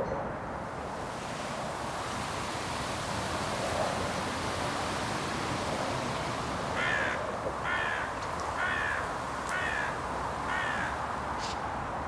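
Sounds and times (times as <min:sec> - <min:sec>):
steady rushing noise: 0:00.0 - 0:12.0
crow cawing: 0:06.7 - 0:11.6.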